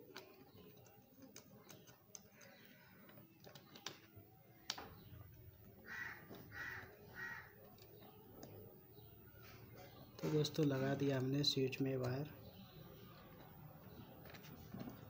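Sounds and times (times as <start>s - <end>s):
crow cawing: 5.8s - 7.6s.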